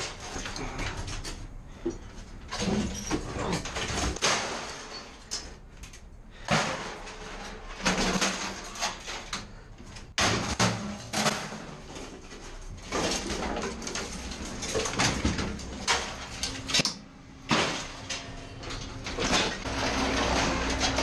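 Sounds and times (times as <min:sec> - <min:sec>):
scrap metal clattering crashes: 0:02.5 - 0:05.5, 0:06.3 - 0:09.4, 0:10.1 - 0:16.8, 0:17.4 - 0:21.0.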